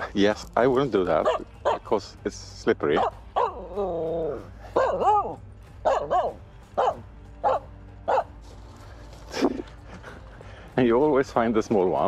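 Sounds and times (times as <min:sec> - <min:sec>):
dog barking: 0:01.2 - 0:01.9, 0:02.9 - 0:03.7, 0:04.6 - 0:08.3.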